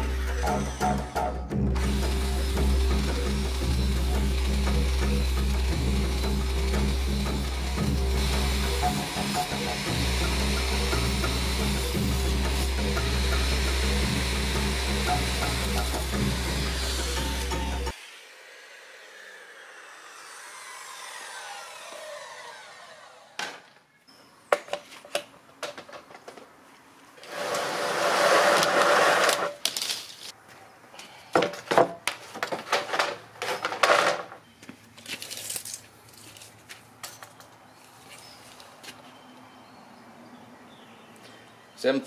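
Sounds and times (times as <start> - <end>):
circular saw winding down: 0.0 - 23.8, 27.2 - 29.5.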